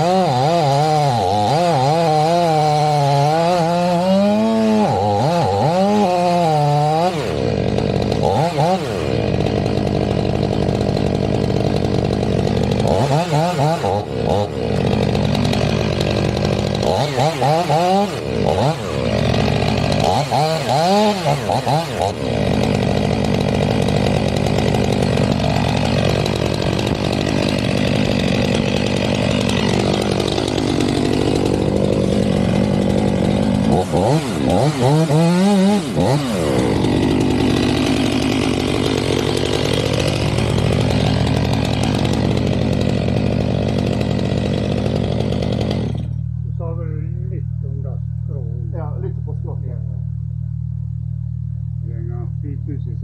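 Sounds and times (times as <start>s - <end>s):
chainsaw cutting wood: 0.0s - 46.4s.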